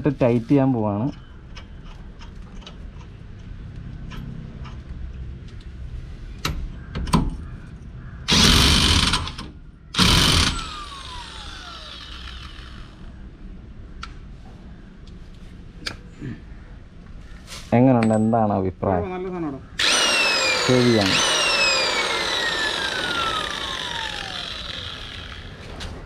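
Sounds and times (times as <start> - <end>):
motor winding down whine: 8.3 - 9.4, 10.0 - 13.1, 19.8 - 26.0.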